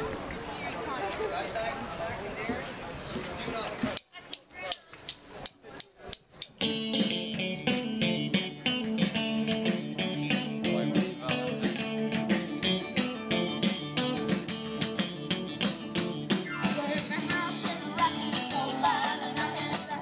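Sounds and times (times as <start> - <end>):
steady drum beat: 5.5 - 20.0
electric guitars: 6.6 - 20.0.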